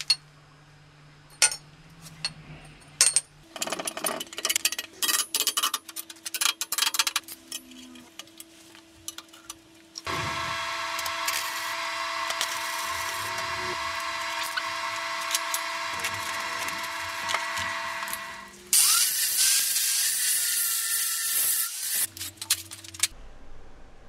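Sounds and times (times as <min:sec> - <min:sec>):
power tool whining: 0:10.0 - 0:22.1.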